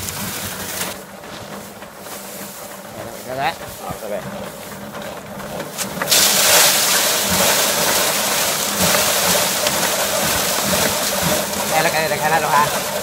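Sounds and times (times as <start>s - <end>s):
thresher engine hum: 0.0s - 13.0s
rushing hiss of threshing drum: 6.1s - 13.0s.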